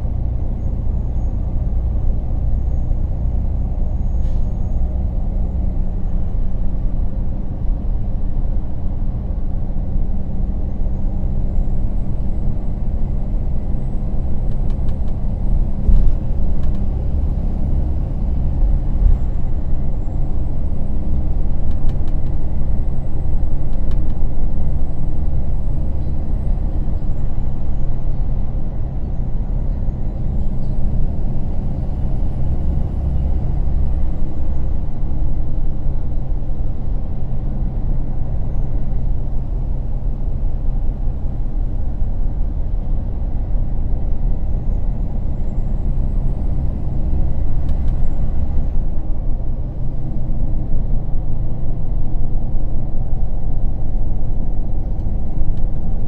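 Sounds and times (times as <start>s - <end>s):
coach engine and road rumble: 0.0s - 56.0s.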